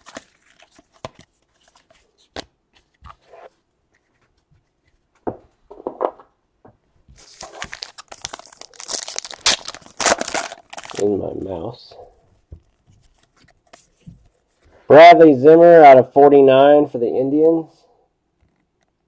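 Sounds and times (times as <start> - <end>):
cards tapping and rustling: 0.0 - 3.2
foil pack crinkling: 7.2 - 11.6.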